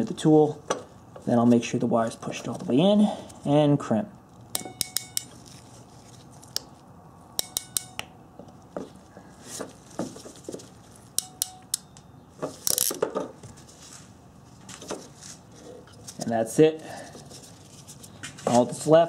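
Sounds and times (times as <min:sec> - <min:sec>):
crimper ratchet clicking: 0:12.6 - 0:13.0.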